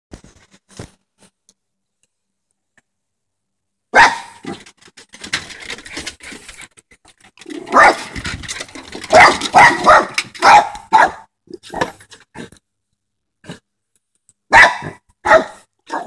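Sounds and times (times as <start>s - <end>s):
dog barking: 3.9s - 4.6s, 7.6s - 8.2s, 9.0s - 11.9s, 14.5s - 16.0s.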